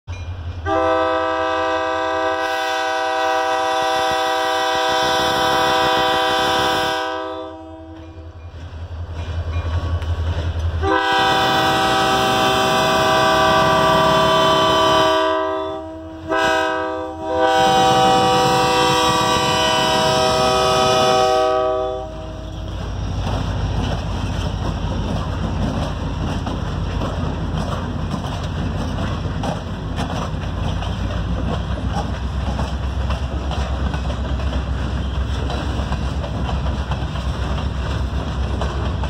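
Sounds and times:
locomotive air horn blasts: 0:00.6 - 0:08.2, 0:10.8 - 0:22.6.

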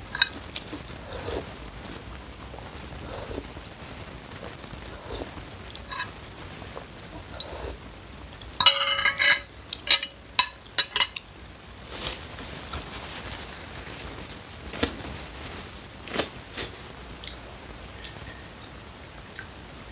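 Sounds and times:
cutlery clinking against bowl: 0:05.9 - 0:06.1, 0:08.6 - 0:11.2
faint rustling: 0:11.8 - 0:17.0.

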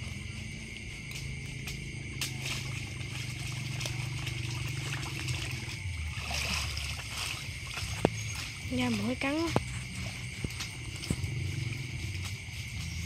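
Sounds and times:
insect trill: 0:00.0 - 0:13.0
low hum: 0:00.0 - 0:13.0
water trickling and sloshing: 0:00.0 - 0:13.0.

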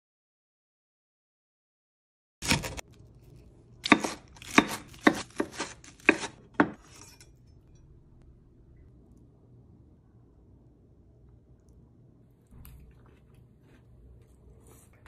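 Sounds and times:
knife crunching through fried cutlet: 0:03.8 - 0:07.0.

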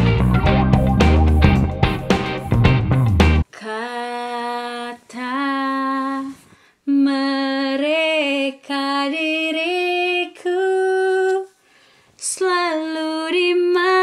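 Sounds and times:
woman singing unaccompanied: 0:03.5 - 0:11.6, 0:12.2 - 0:14.0.

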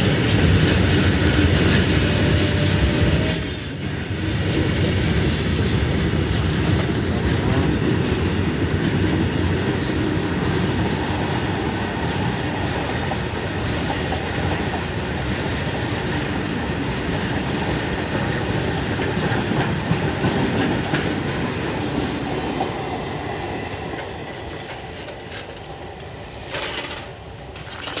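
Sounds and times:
train wheels rumbling on rails: 0:00.0 - 0:28.0
train wheel squeals: 0:02.1 - 0:04.2, 0:05.1 - 0:07.4, 0:08.0 - 0:11.3.

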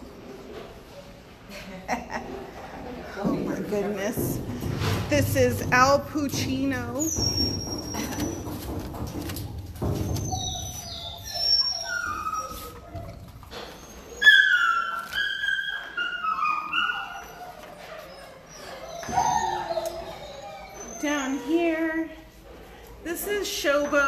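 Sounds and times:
dogs whining and howling: 0:06.9 - 0:22.2.

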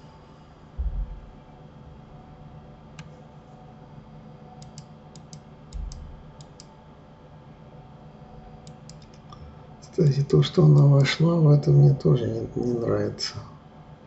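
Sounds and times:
steady low hum: 0:00.0 - 0:14.0
dull low thump: 0:00.8 - 0:01.3
computer mouse clicking: 0:04.6 - 0:06.7, 0:08.6 - 0:09.2.

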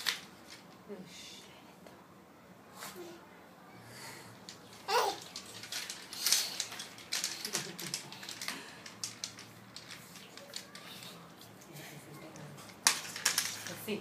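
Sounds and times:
toddler giggling: 0:04.9 - 0:05.2.

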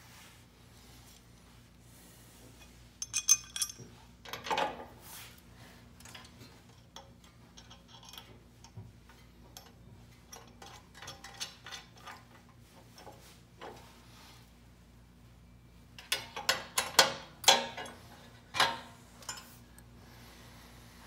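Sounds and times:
metal bracket and bolts clinking: 0:02.6 - 0:04.9, 0:06.0 - 0:08.8, 0:16.0 - 0:19.6.

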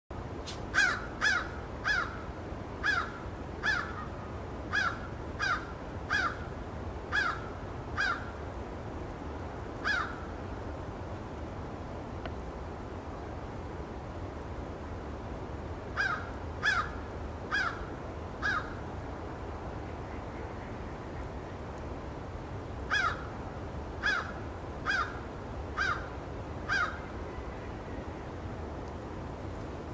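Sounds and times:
crow cawing: 0:00.8 - 0:02.2, 0:02.8 - 0:04.1, 0:04.7 - 0:06.4, 0:07.1 - 0:08.3, 0:09.8 - 0:10.2, 0:16.0 - 0:18.8, 0:22.9 - 0:23.3, 0:24.0 - 0:25.2, 0:25.8 - 0:26.1, 0:26.7 - 0:27.0.

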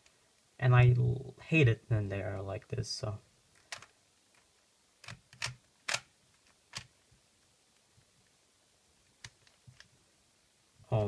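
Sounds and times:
puzzle cube layers clicking: 0:03.6 - 0:07.0.

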